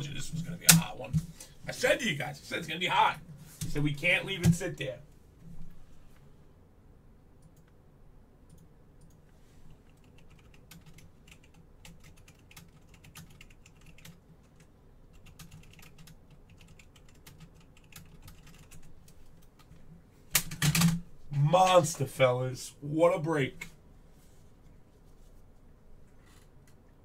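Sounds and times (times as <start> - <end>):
typing on computer keyboard: 9.8 - 18.9.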